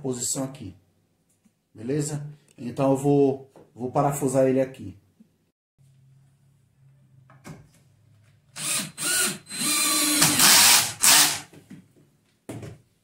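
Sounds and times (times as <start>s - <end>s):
cordless drill whirring: 8.6s - 11.5s.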